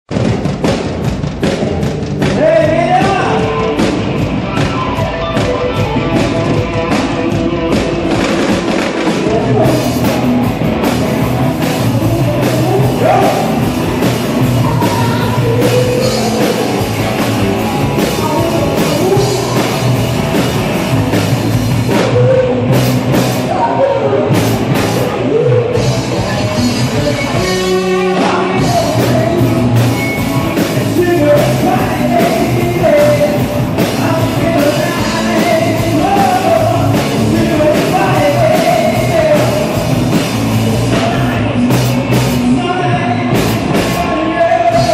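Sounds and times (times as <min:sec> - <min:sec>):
bass guitar: 0:00.0 - 0:44.9
drum kit: 0:00.0 - 0:44.9
electric guitar: 0:00.1 - 0:44.9
man singing: 0:02.2 - 0:04.2, 0:05.8 - 0:10.3, 0:11.1 - 0:20.8, 0:21.7 - 0:44.9
woman singing: 0:11.8 - 0:13.4, 0:14.4 - 0:20.0.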